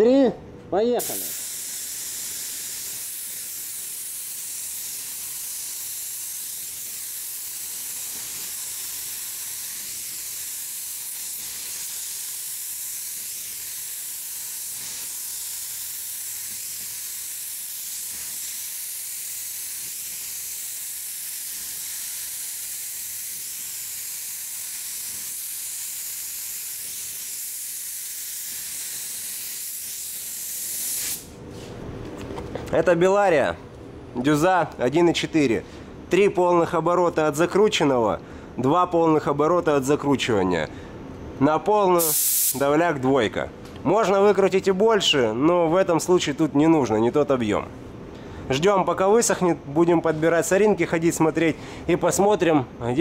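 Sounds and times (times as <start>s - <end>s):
paint spray gun hissing: 1.0s - 31.3s, 42.0s - 42.6s.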